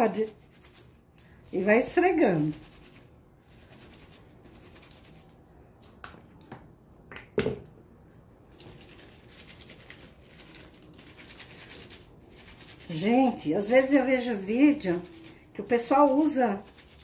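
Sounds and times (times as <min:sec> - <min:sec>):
soapy fabric rubbing: 0:00.0 - 0:05.4, 0:08.4 - 0:17.0.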